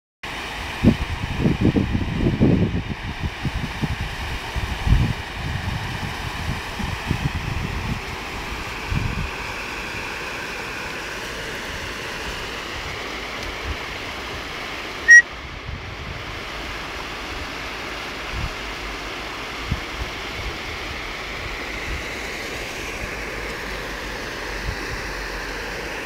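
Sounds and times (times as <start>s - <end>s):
wind buffeting microphone: 0.8s - 9.9s
river water rushing: 7.7s - 15.5s, 16.2s - 26.0s.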